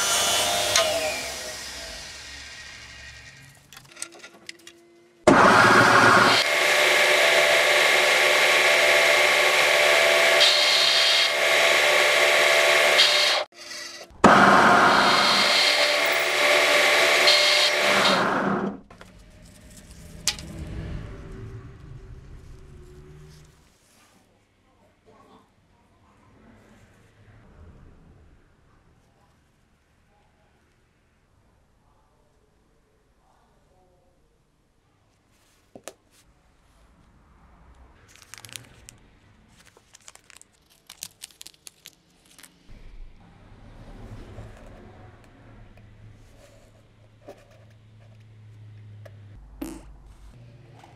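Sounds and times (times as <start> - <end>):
end mill machining steel: 5.3 - 18.8
plastic bag crackling: 38.0 - 42.7.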